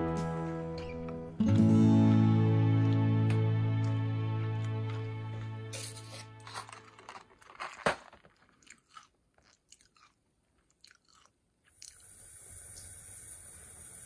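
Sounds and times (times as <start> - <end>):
cat crunching treats: 6.4 - 12.0.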